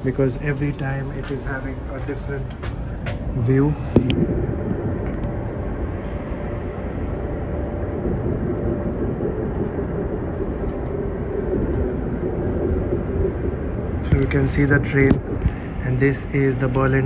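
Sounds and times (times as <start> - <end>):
train wheels rumbling on rails: 0.0 - 5.8
faint steady hum: 0.0 - 17.0.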